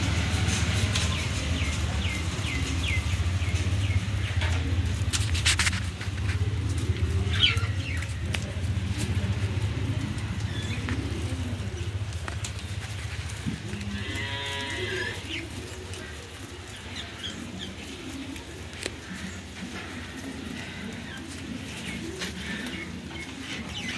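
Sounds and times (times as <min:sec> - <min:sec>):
cow mooing: 0:13.8 - 0:15.3.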